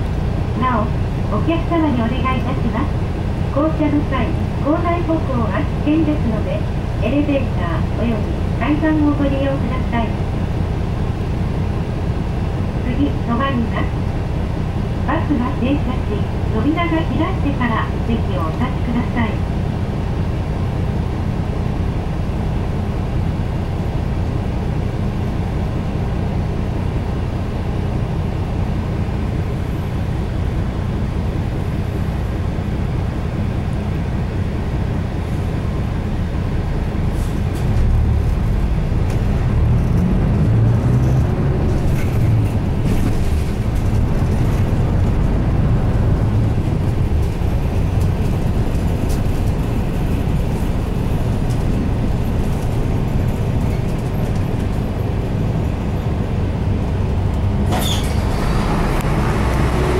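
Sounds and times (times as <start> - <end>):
bus engine humming: 0.0 - 59.9
bus pulling away: 18.7 - 59.9.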